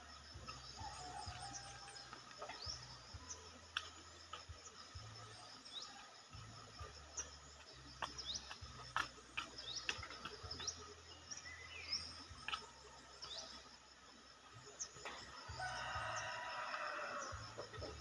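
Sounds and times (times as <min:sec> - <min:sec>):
birds chirping: 0:00.0 - 0:18.0
sharp ticks and taps: 0:07.9 - 0:10.8.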